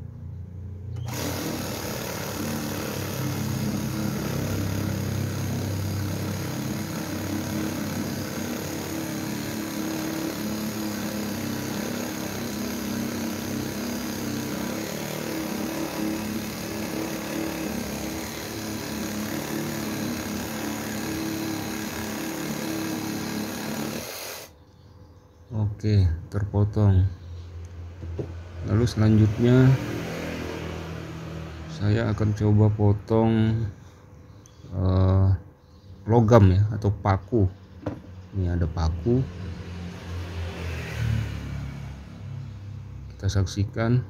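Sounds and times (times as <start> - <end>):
reciprocating saw cutting wood: 1.0 - 24.6.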